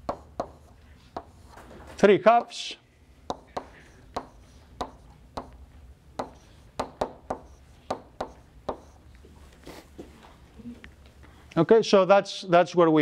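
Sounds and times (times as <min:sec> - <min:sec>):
chalk tapping and scratching: 0:00.0 - 0:01.7, 0:03.3 - 0:05.6, 0:06.2 - 0:09.1.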